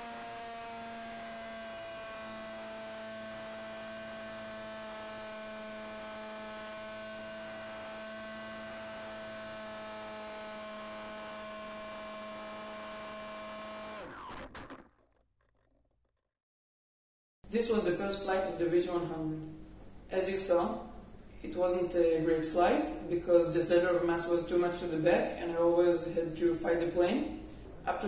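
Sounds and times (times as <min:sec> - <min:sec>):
electric motor and propeller whining: 0:00.0 - 0:15.2.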